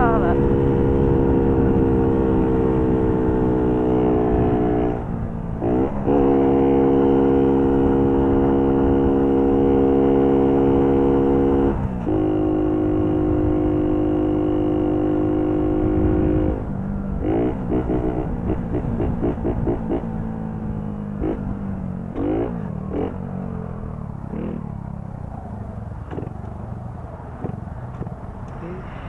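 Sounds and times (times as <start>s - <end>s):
moped engine revving hard: 5.6s - 16.6s, 17.2s - 20.2s, 21.2s - 23.3s, 24.3s - 24.8s.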